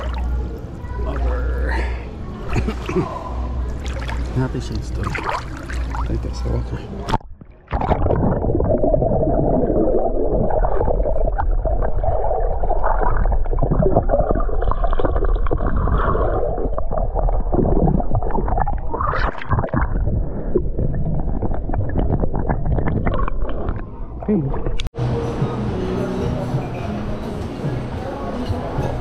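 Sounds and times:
muffled underwater gurgling: 0:07.1 - 0:24.9.

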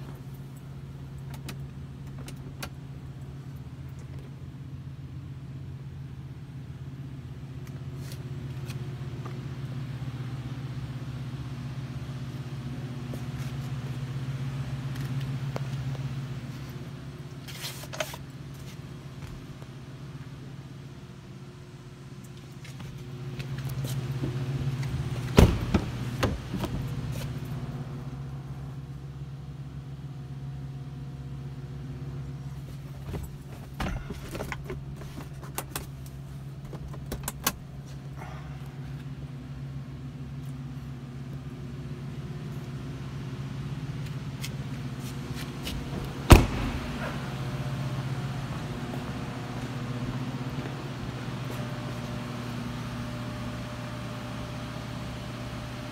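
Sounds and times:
steady low hum: 0:00.0 - 0:55.9
car door slamming: 0:25.3 - 0:26.9, 0:45.9 - 0:47.4.

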